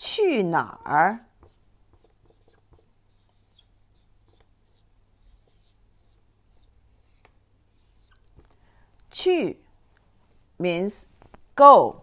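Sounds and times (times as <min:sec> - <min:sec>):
marker writing on whiteboard: 0:01.2 - 0:08.5.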